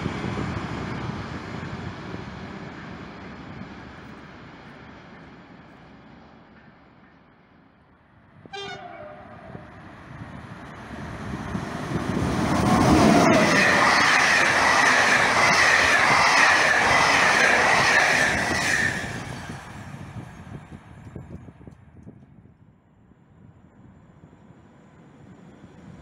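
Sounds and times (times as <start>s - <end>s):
train wheels rumbling on rail: 0.0s - 22.6s
locomotive horn blast: 8.5s - 9.6s.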